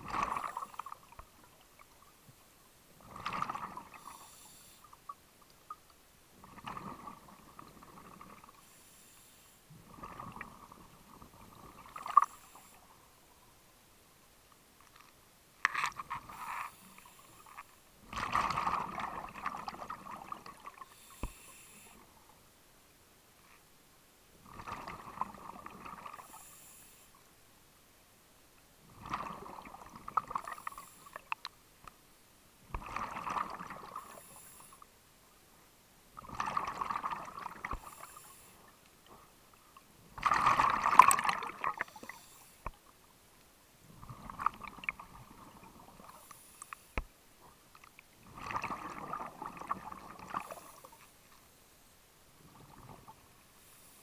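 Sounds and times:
diver breathing on a regulator: 3.9s - 5.0s, 8.6s - 9.7s, 20.8s - 22.1s, 26.2s - 27.2s, 33.9s - 34.9s, 37.7s - 38.7s, 41.8s - 42.7s.

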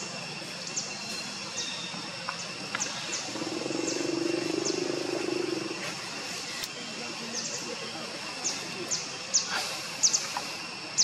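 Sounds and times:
low steady hum: 0.0s - 6.7s
high-pitched insect drone: 0.0s - 11.0s.

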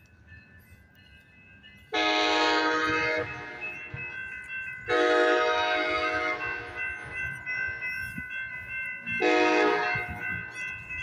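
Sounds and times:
crossing warning bell ringing: 0.0s - 11.0s
train horn blasts: 1.9s - 3.6s, 4.9s - 6.7s, 9.2s - 10.2s.

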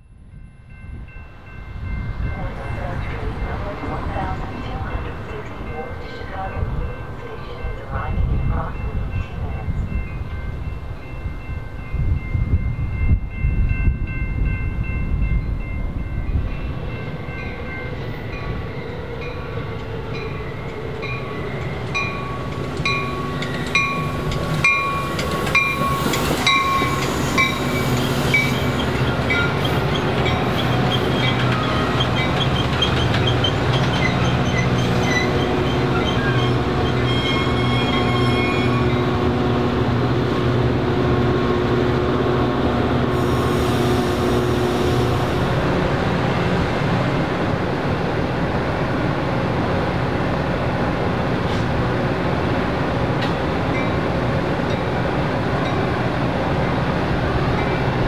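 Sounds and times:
crossing bells ringing: 0.0s - 43.3s
diesel train hum: 0.0s - 58.0s
train wheel clicks: 22.5s - 28.1s
train horn: 35.3s - 39.8s, 40.7s - 45.7s.

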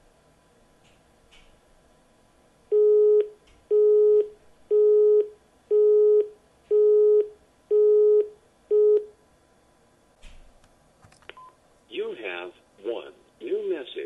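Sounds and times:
telephone busy tone beeps: 2.7s - 9.1s.

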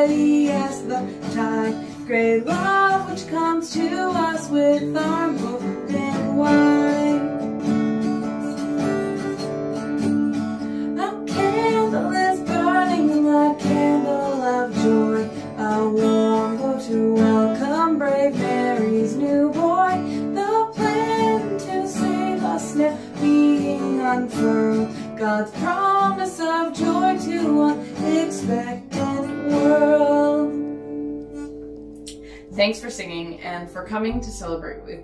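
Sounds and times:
woman singing a hymn: 0.0s - 7.5s, 11.0s - 30.7s
acoustic guitar strumming: 0.0s - 35.0s.

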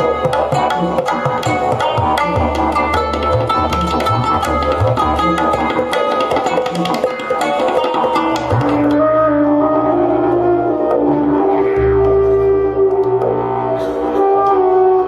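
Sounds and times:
steady held notes: 0.0s - 15.0s
didgeridoo drone: 8.2s - 15.0s.

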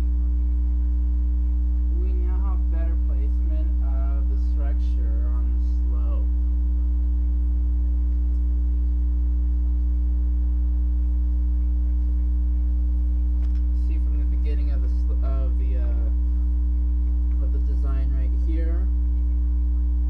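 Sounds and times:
electrical mains hum: 0.0s - 20.0s
person speaking: 1.8s - 6.5s, 13.3s - 16.4s, 17.0s - 19.1s.

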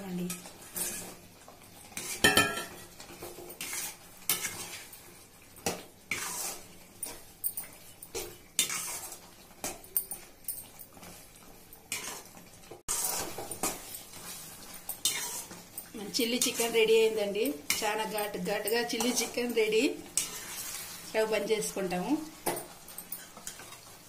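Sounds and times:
metal ladle scraping a pan: 0.3s - 1.2s, 1.9s - 7.3s, 8.1s - 10.3s, 11.9s - 16.9s, 17.6s - 21.2s.

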